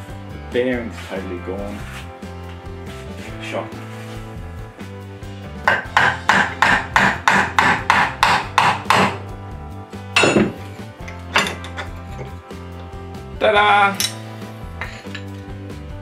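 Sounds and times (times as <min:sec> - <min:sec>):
background music: 0:00.0 - 0:16.0
hammer striking metal bar: 0:05.6 - 0:09.2, 0:10.1 - 0:12.0, 0:14.0 - 0:14.2.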